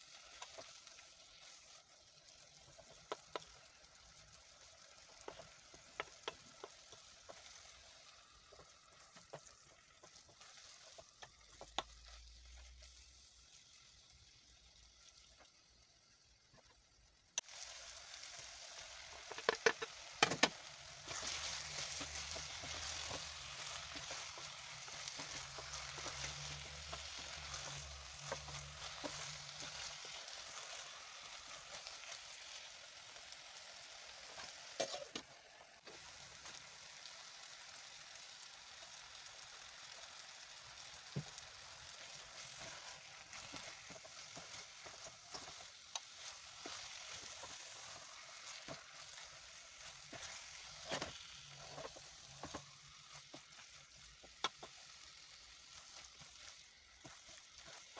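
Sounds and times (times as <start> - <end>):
onions sizzling in pot: 0.0 - 57.9
spoon knocking and scraping pot: 19.2 - 24.5.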